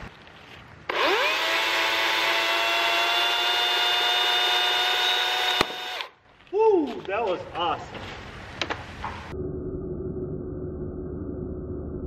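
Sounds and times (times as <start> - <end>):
electric chainsaw motor whining: 0.9 - 6.2.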